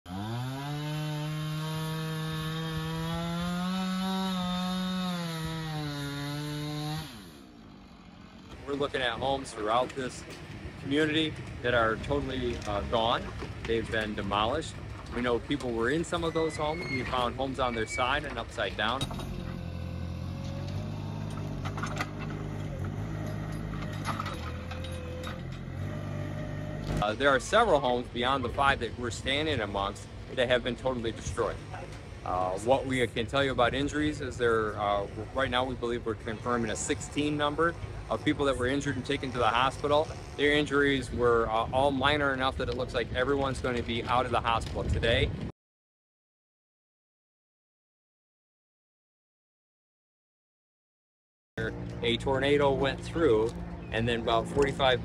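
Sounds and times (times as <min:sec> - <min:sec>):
chainsaw running: 0:00.1 - 0:30.4, 0:34.6 - 0:41.7
clanks and knocks: 0:18.2 - 0:19.8, 0:20.4 - 0:25.9.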